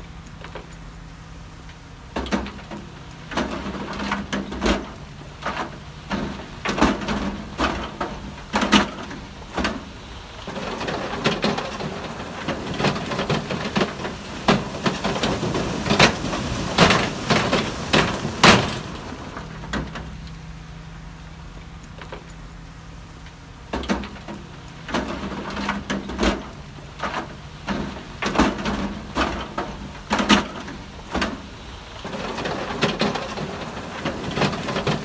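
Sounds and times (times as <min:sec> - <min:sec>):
heavy diesel engine running: 0:00.0 - 0:35.0
rock and metal knocks: 0:02.1 - 0:09.9, 0:23.7 - 0:31.5.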